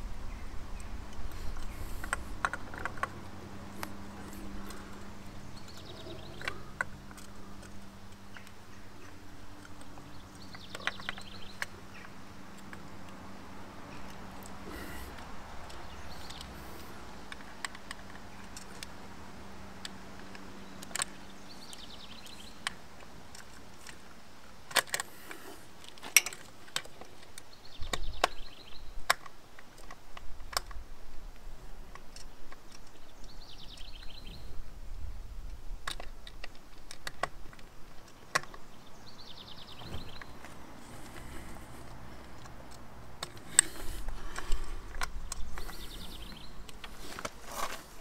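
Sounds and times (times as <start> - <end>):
screwdriver and metal parts clicking: 0.8 - 13.2, 24.7 - 28.4, 39.9 - 48.0
bird chirps: 3.9 - 7.7, 8.3 - 12.2, 15.7 - 16.9, 20.6 - 22.6, 27.5 - 29.0, 32.8 - 34.6, 38.2 - 41.9, 43.5 - 47.1.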